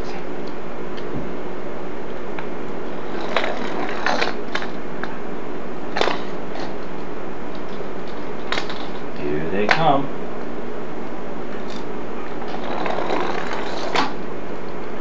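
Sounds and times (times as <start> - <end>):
camcorder hiss and hum: 0.0 - 15.0
toy car wheels on wooden floor: 12.5 - 14.2.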